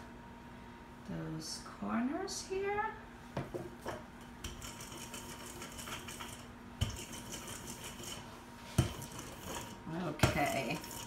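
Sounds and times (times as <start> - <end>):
hands rubbing dough on metal pan: 4.4 - 11.0.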